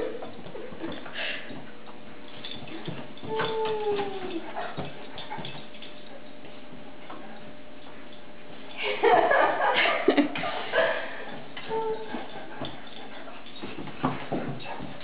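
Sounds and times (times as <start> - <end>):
dogs growling: 2.2 - 6.7.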